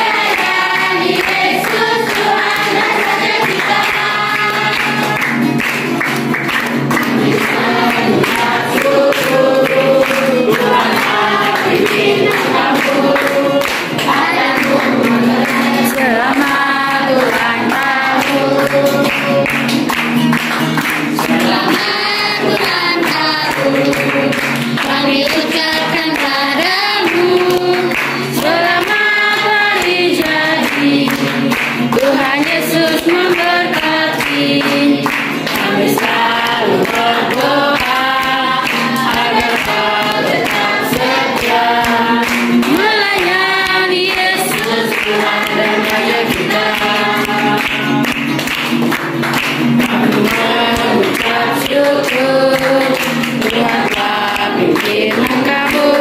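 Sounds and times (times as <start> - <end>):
group singing in unison: 0.0 - 56.0
strummed acoustic guitar: 0.0 - 56.0.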